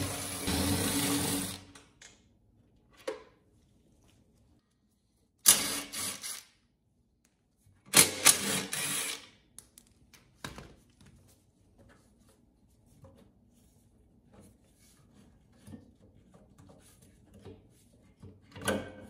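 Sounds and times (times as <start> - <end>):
cordless drill running: 5.5 - 6.4, 8.2 - 9.2.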